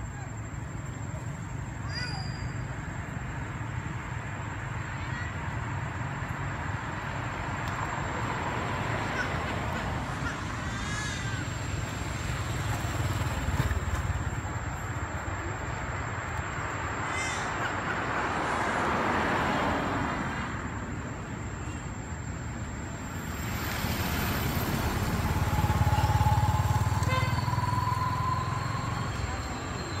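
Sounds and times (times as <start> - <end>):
road noise: 0.0 - 30.0
baby monkeys squealing: 10.1 - 11.5.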